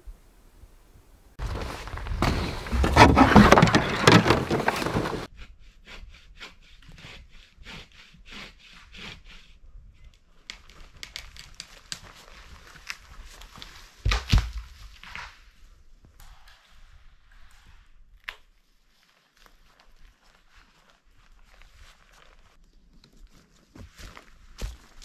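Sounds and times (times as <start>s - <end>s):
footsteps on forest floor: 1.4s - 5.3s, 19.4s - 25.0s
hand saw cutting wood: 2.2s - 9.6s.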